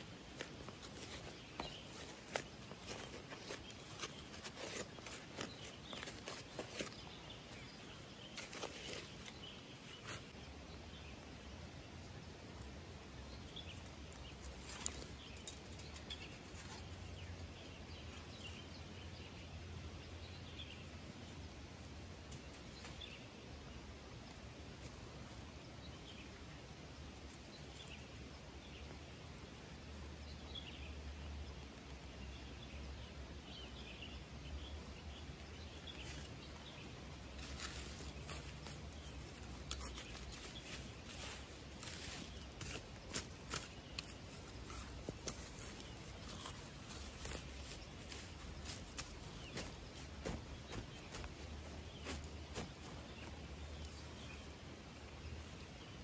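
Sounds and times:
soil being worked by hand: 0.0s - 10.4s
bird chirping: 0.0s - 11.2s, 24.9s - 56.0s.

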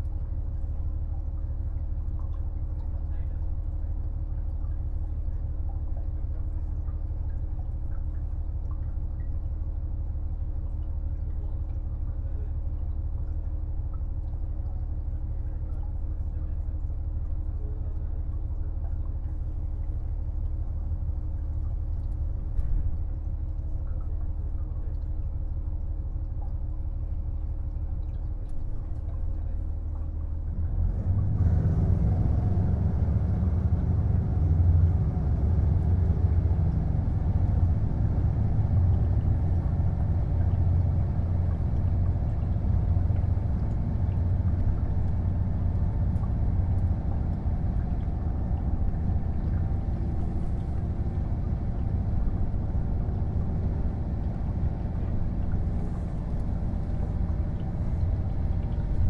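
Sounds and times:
diesel engine drone: 0.0s - 59.0s.

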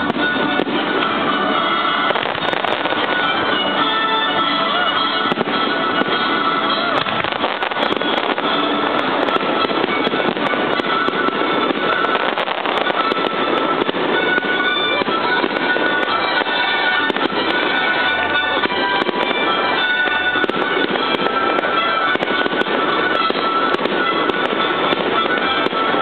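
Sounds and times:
fireworks bursting and crackling: 0.0s - 26.0s
music playing: 0.0s - 26.0s.

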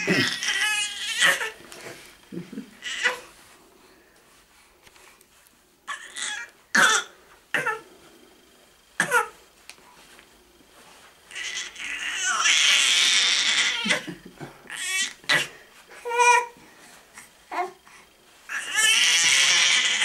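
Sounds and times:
baby squealing and grunting: 0.0s - 1.6s, 2.8s - 3.2s, 11.3s - 14.1s, 18.5s - 20.0s.

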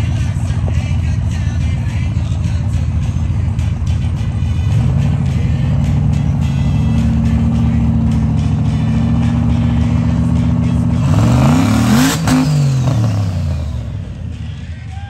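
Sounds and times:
truck engine revving under load: 3.5s - 14.6s.

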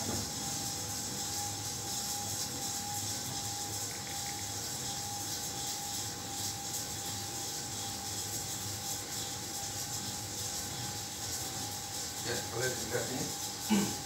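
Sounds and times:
popcorn stirrer scraping: 0.0s - 14.0s
even hiss: 12.2s - 14.0s.

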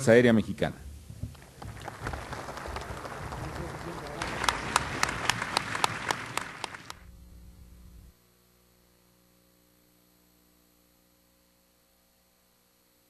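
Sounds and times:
faint steady hum: 0.0s - 13.0s
audience applause: 1.3s - 7.0s.

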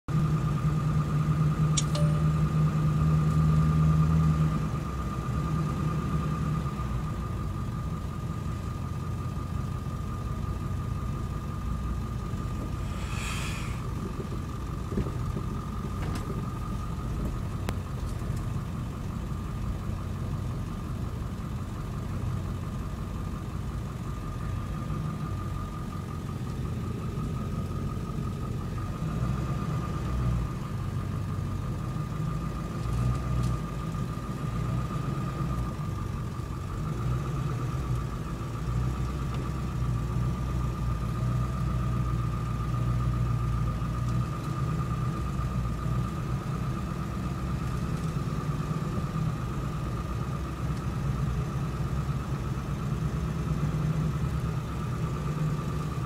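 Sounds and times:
truck engine and road rumble: 0.0s - 56.0s
thin steady high tone: 1.8s - 2.6s.

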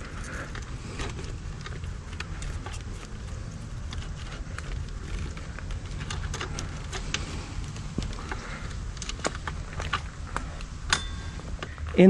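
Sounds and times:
light clicks and rustles: 0.0s - 12.0s
steady low rumble: 0.0s - 12.0s.

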